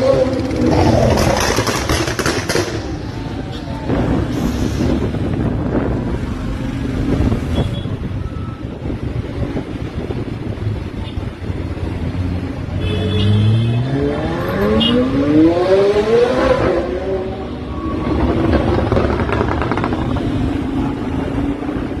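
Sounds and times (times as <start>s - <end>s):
scooter and motorcycle engines: 0.0s - 22.0s
sports car accelerating: 13.4s - 20.2s.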